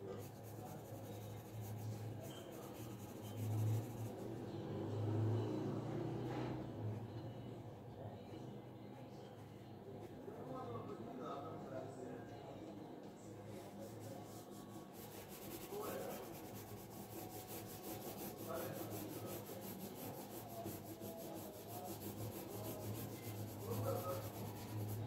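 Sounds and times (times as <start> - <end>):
pencil scratching on paper: 0.0 - 4.2, 13.8 - 25.0.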